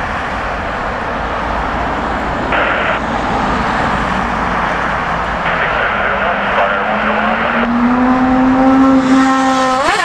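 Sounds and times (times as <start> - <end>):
jet engines roaring at takeoff: 0.0 - 8.4
radio scanner hiss: 2.5 - 3.0, 5.4 - 7.7.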